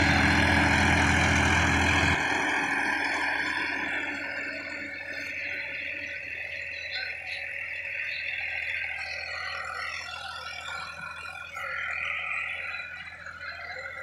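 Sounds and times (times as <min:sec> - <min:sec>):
high-pitched chorus: 0:00.0 - 0:09.9
distant tractor with tiller: 0:00.0 - 0:14.0.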